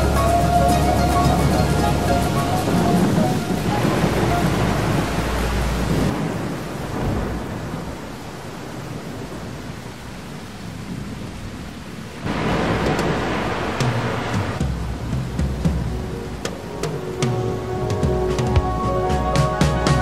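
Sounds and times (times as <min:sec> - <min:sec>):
music: 0:00.0 - 0:05.8, 0:14.6 - 0:20.0
rain hissing: 0:00.0 - 0:20.0
thunder rumbling: 0:00.0 - 0:20.0.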